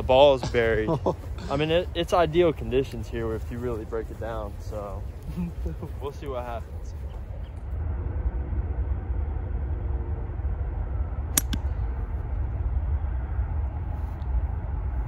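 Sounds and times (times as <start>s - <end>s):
wind rumble on microphone: 0.0s - 15.0s
golf club striking ball: 11.4s - 11.8s.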